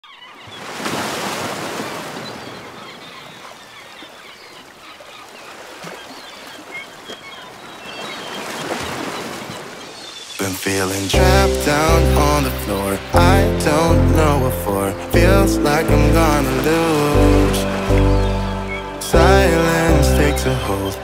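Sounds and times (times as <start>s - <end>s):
small bird calls: 2.2s - 11.1s
surf washing onto beach: 8.5s - 21.0s.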